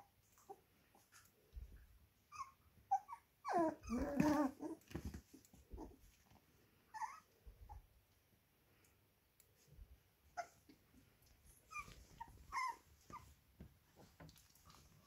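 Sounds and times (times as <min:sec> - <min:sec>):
puppies growling: 0:02.9 - 0:06.0
puppies yipping: 0:11.7 - 0:13.3.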